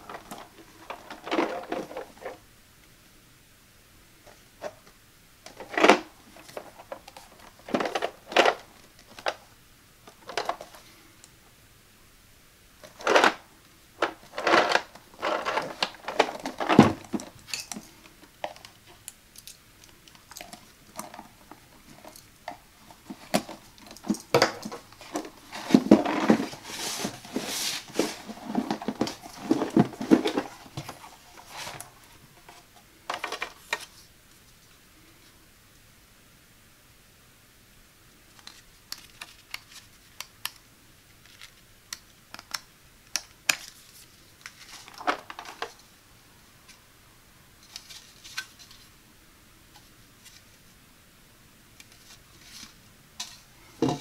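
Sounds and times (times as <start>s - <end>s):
packaging rustling and crinkling: 0.0s - 2.4s, 5.5s - 9.4s, 12.8s - 34.1s, 38.4s - 40.2s, 43.5s - 46.0s.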